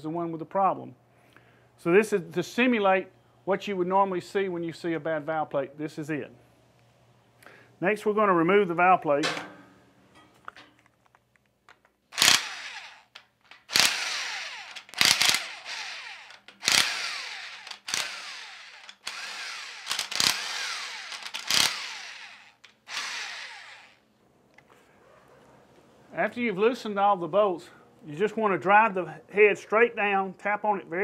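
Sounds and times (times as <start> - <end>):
impact wrench bursts: 12.1 - 24.0.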